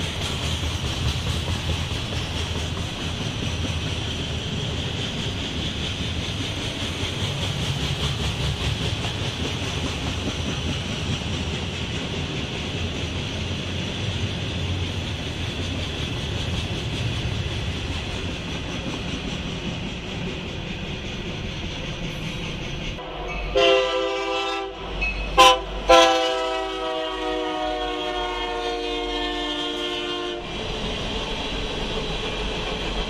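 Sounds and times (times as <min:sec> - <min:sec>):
freight train wheels clattering: 0:00.0 - 0:23.8.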